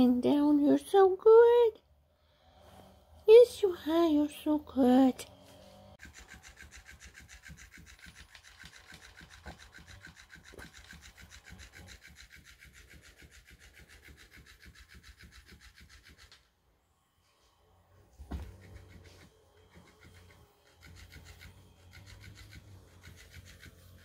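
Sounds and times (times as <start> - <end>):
toy motor rasping: 3.3 - 16.6, 18.4 - 24.0.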